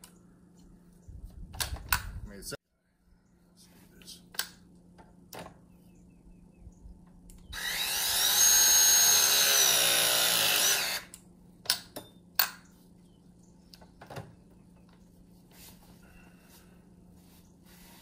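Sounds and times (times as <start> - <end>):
press tool motor whine: 7.6 - 11.1.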